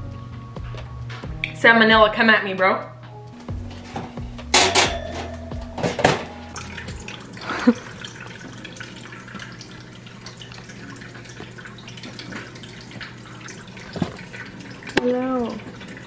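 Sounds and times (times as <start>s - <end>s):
water trickling from a tap: 6.5s - 16.0s
faint drips: 6.6s - 16.0s.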